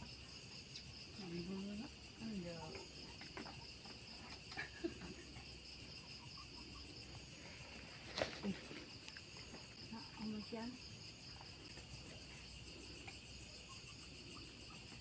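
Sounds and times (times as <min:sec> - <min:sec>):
night insects chirping: 0:00.0 - 0:15.0.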